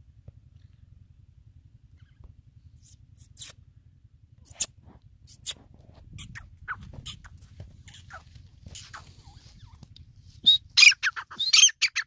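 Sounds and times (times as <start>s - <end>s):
low wind rumble: 0.0s - 11.5s
bird giving squeaky notes: 10.4s - 12.0s.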